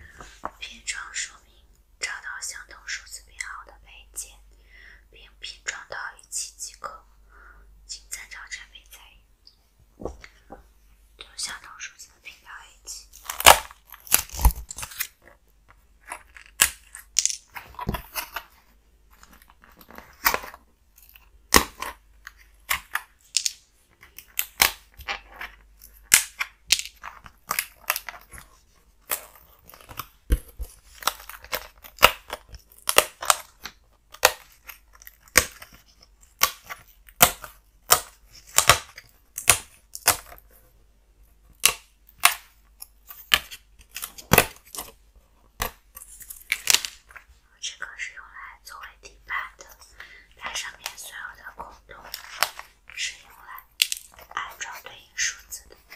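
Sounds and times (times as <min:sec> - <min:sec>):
puzzle pieces snapping out: 0:16.0 - 0:18.4, 0:22.6 - 0:28.2, 0:45.6 - 0:47.2, 0:53.7 - 0:54.2.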